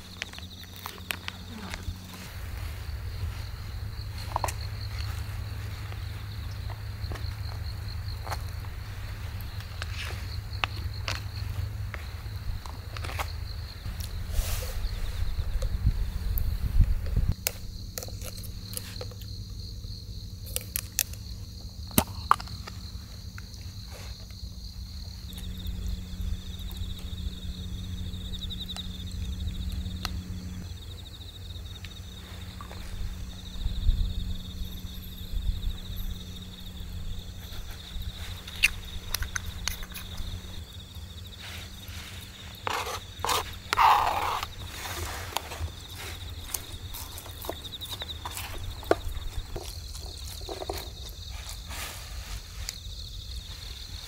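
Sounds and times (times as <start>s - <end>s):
high insect trill: 0.0s - 54.0s
scraping on cutting board: 42.1s - 46.2s.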